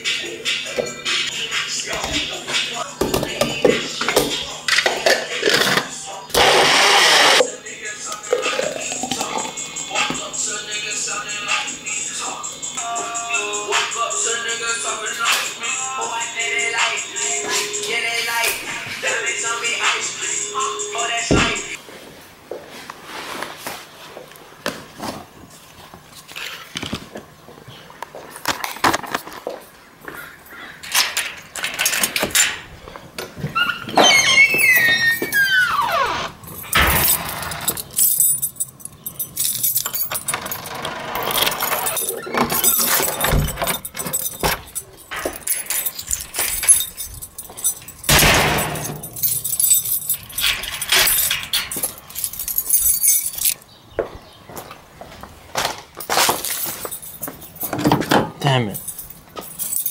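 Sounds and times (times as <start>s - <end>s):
squeal falling in pitch: 33.6s - 36.1s.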